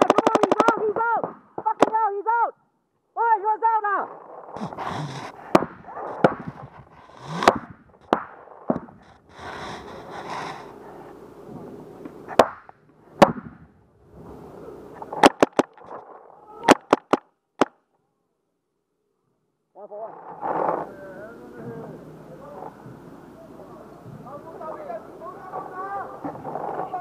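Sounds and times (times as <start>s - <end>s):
paintball markers firing: 0.0s - 0.9s, 15.2s - 15.9s, 16.6s - 17.8s.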